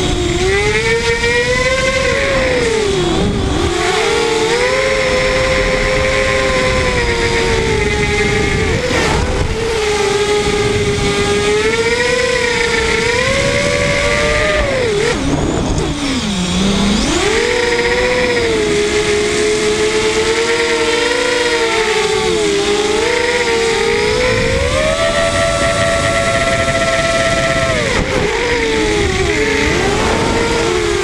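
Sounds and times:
quadcopter motors whining: 0.0s - 31.0s.

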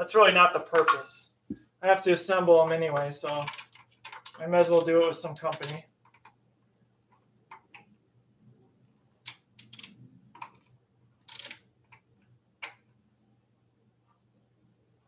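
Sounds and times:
small clicks and scrapes on metal: 11.3s - 12.0s.

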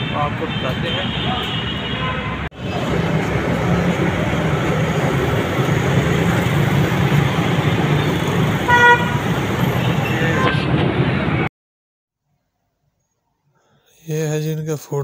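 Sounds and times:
vehicle horn toot: 0.0s - 2.5s, 8.0s - 10.7s
street traffic noise: 0.0s - 11.5s.

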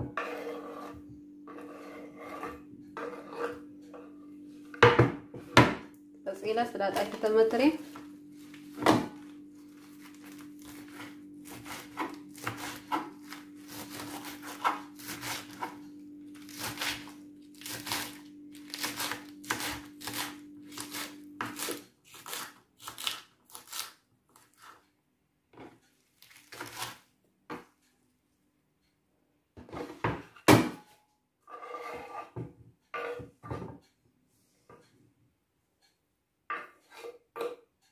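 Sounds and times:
steady low hum: 0.0s - 21.5s.

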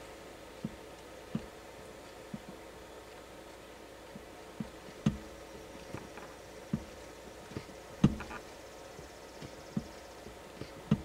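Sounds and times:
accelerator pedal thumps and clicks: 0.6s - 1.5s, 4.2s - 11.0s.

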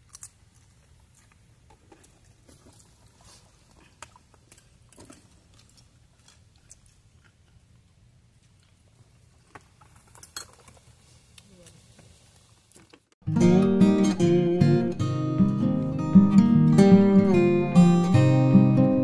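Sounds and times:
chewing crunches: 0.0s - 7.6s.

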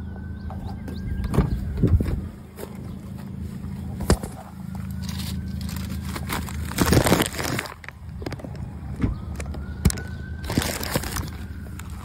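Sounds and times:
footsteps on gravel and grass: 2.0s - 8.8s, 9.5s - 12.0s.

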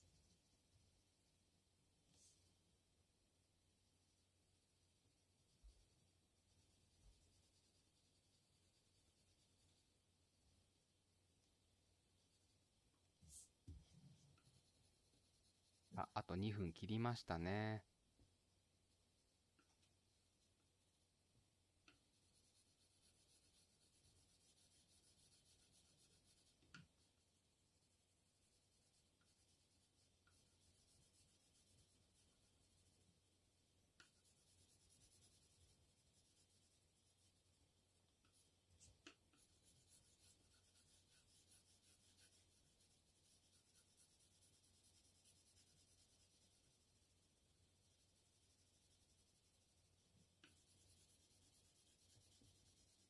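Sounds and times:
pencil scratching on paper: 5.4s - 10.0s, 13.2s - 16.0s, 21.9s - 27.2s, 27.8s - 33.0s, 34.0s - 53.0s.

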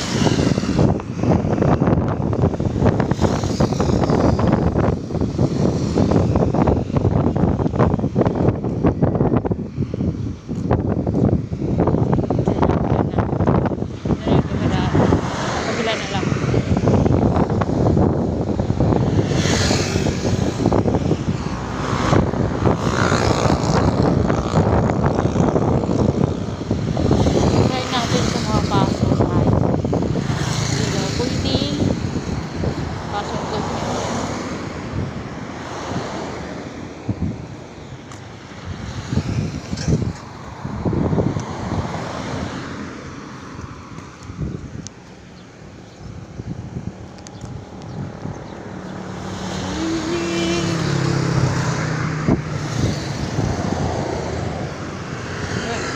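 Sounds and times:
road traffic passing: 0.0s - 55.9s
wind rumble on microphone: 0.0s - 55.9s
cars driving past: 11.8s - 55.9s
motorcycle passing: 12.6s - 37.5s, 46.0s - 55.9s
truck passing: 13.6s - 55.9s.

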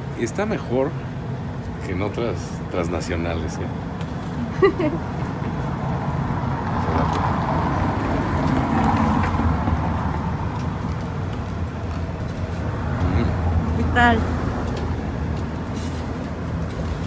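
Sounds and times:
steady low traffic rumble: 0.0s - 17.0s
vehicle passing: 4.2s - 17.0s.

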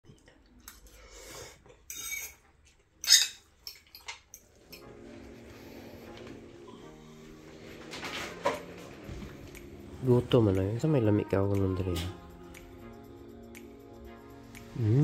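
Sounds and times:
soft background music: 4.4s - 15.0s.

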